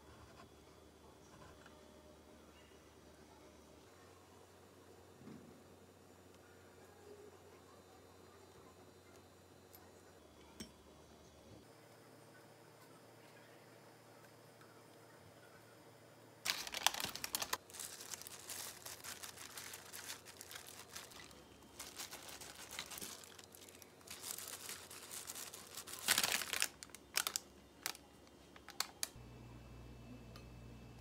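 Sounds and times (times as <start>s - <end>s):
plastic glove and paper crinkling: 16.5s - 29.2s.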